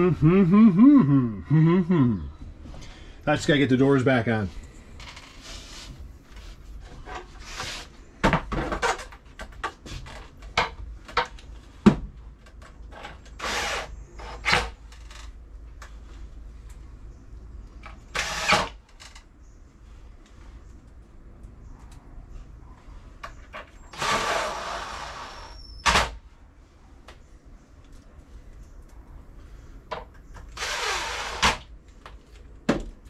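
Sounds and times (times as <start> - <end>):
cordless drill driving screws: 13.3 - 14.7, 18.1 - 18.8, 23.9 - 26.0, 30.5 - 31.6.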